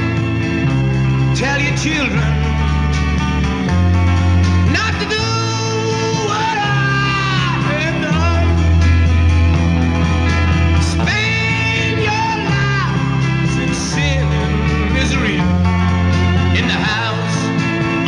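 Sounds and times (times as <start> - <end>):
bass guitar: 0.0 - 18.0
drums: 0.0 - 18.0
electric guitar: 0.0 - 18.0
organ: 0.0 - 18.0
man singing: 1.3 - 2.5, 4.7 - 8.9, 10.8 - 15.6, 16.5 - 17.7.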